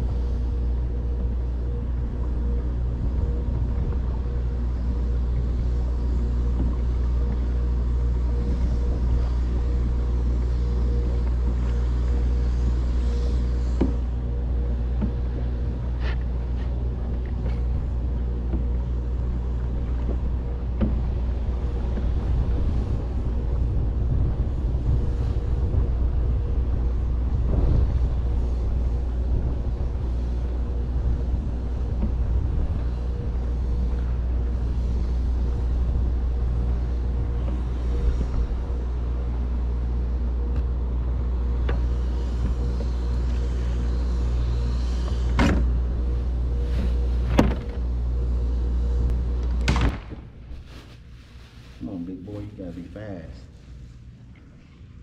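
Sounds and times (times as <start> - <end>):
low rumble with hum: 0.0 - 55.0.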